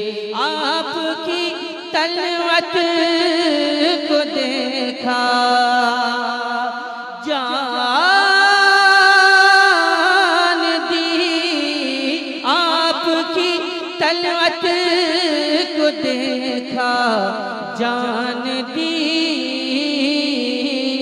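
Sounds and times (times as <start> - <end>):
man singing: 0.0 - 21.0.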